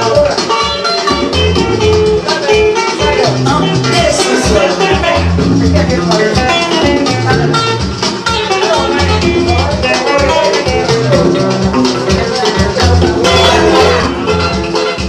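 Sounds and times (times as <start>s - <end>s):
loud dance music: 0.0s - 15.0s.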